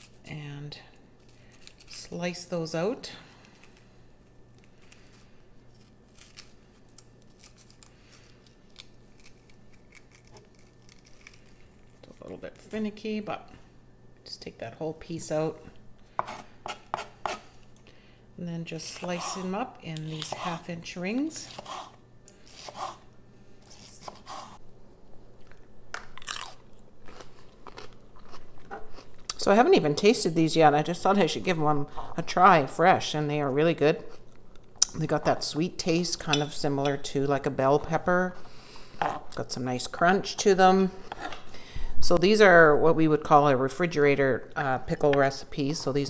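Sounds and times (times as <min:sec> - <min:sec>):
crunchy bites and chewing: 0:04.5 - 0:12.2, 0:25.4 - 0:29.4
knife cutting pepper on board: 0:16.2 - 0:17.4, 0:21.4 - 0:23.0, 0:23.7 - 0:24.6.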